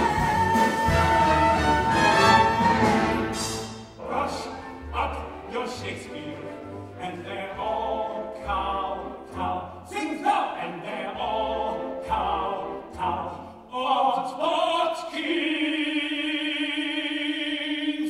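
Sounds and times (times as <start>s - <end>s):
orchestra playing: 0.0s - 13.6s.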